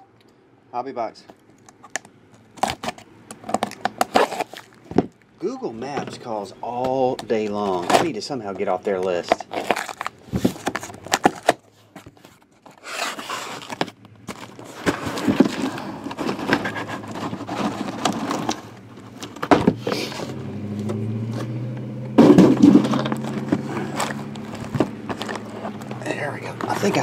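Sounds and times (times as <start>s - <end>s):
low steady hum: 0.0s - 27.0s
shrink-wrapped boxes crinkling: 1.5s - 20.3s, 22.3s - 27.0s
cardboard flaps pulled back: 10.0s - 18.8s.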